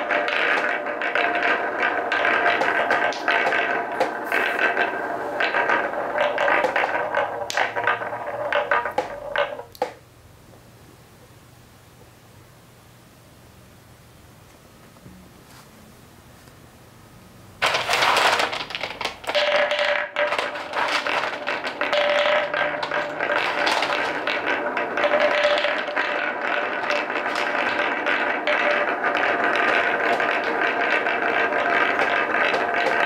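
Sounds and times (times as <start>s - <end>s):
balls clicking and clacking: 0.0s - 10.6s, 17.6s - 33.0s
wooden balls rolling on track: 0.0s - 10.6s, 17.6s - 33.0s.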